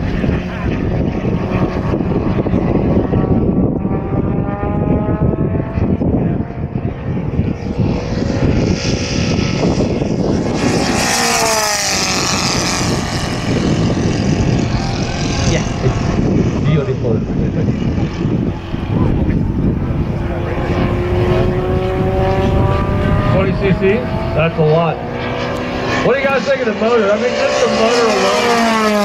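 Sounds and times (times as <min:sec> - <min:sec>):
model airplane engine flyby: 0:00.0 - 0:29.0
wind noise on microphone: 0:00.0 - 0:29.0.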